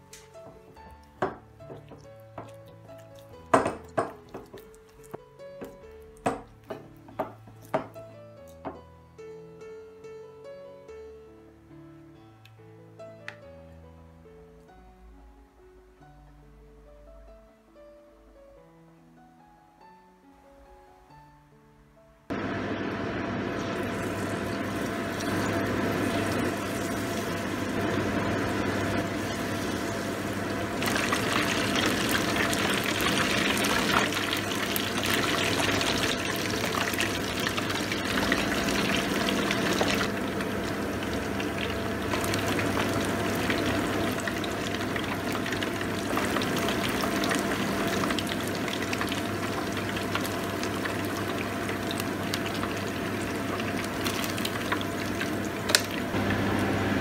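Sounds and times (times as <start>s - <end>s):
deep-frying sizzle in oil: 22.3s - 57.0s.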